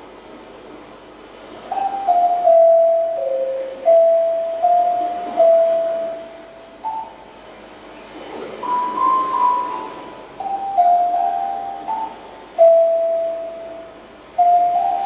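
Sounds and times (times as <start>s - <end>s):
bell-like tones melody: 1.7s - 7.3s, 8.6s - 15.0s.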